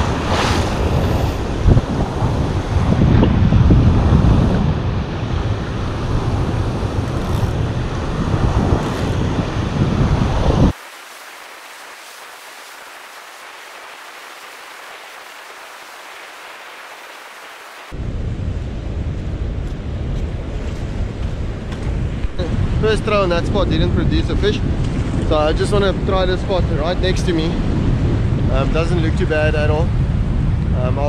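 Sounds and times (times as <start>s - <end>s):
wind buffeting microphone: 0.0s - 10.8s, 17.9s - 31.0s
distant surf hiss: 10.7s - 18.0s.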